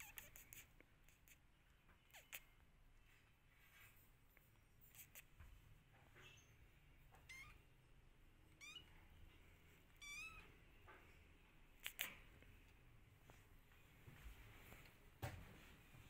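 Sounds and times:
kitten meowing: 0.0s - 1.4s, 2.0s - 2.6s, 7.1s - 7.7s, 8.5s - 9.0s, 10.0s - 10.6s.

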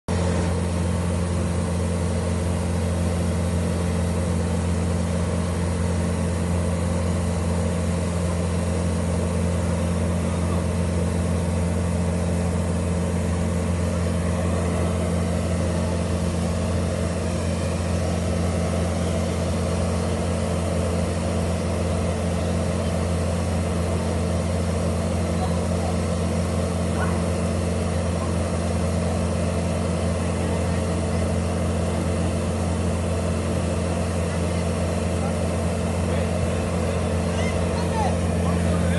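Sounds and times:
diesel engine running steadily: 0.0s - 38.9s.

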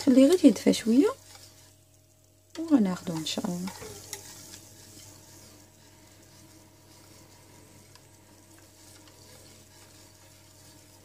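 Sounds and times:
spatula stirring thick mixture: 0.0s - 11.0s
spatula ticking against pot: 2.4s - 7.1s.

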